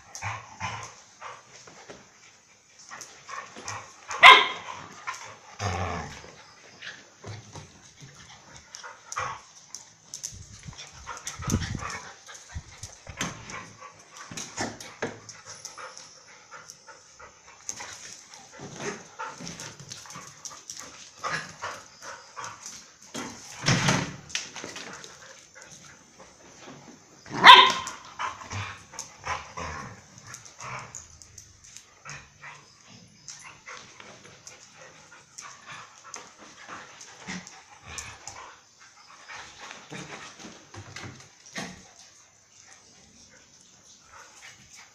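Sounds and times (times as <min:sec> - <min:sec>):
dogs barking: 0:04.1 - 0:04.7, 0:27.4 - 0:28.0.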